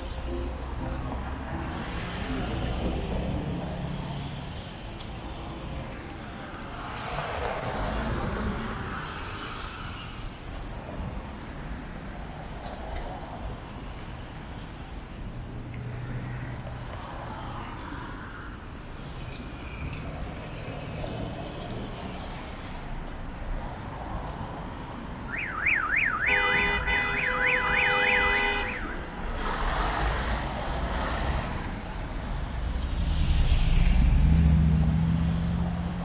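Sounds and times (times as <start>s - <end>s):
city traffic: 0.0s - 36.0s
car alarm warbling: 25.3s - 26.4s
heavy vehicle engine passing: 32.8s - 36.0s.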